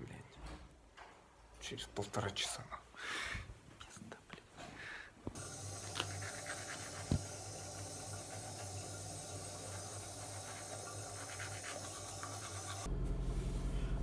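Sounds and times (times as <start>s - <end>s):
toothbrush scrubbing teeth: 5.4s - 12.9s
low steady hum: 5.4s - 14.0s.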